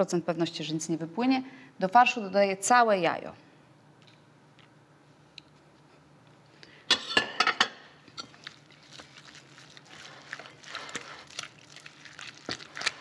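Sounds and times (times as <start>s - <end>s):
stirring and scraping in bowl: 8.1s - 13.0s.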